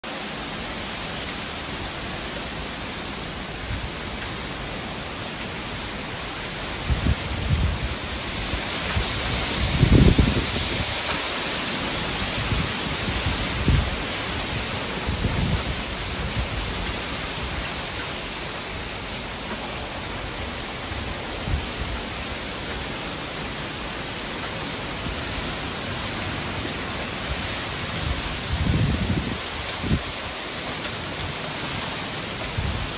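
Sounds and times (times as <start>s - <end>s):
heavy rain pouring: 0.0s - 32.9s
wind buffeting microphone: 6.8s - 11.2s, 11.8s - 22.8s, 27.2s - 30.4s.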